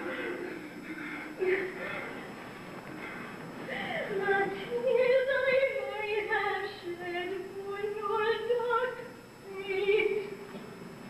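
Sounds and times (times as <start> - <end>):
woman singing operatically: 3.7 - 10.4.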